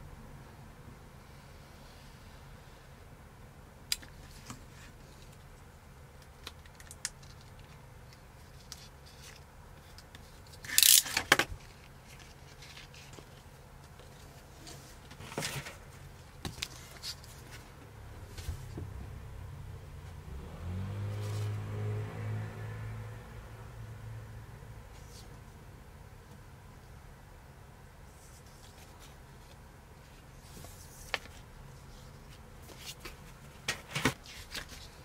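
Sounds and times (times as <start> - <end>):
low steady hum: 0.0 - 35.0
vinyl film ripping: 10.6 - 11.5.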